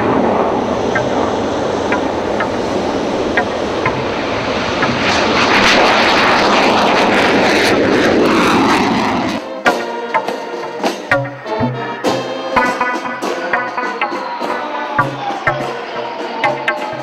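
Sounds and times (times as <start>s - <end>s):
jet engine roaring: 0.0s - 17.0s
music: 9.4s - 17.0s.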